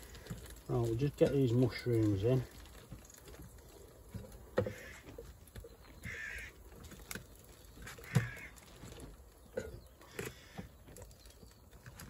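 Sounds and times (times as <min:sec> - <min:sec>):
crows cawing: 0:04.6 - 0:05.3, 0:06.0 - 0:06.8, 0:07.8 - 0:09.0, 0:10.1 - 0:10.7.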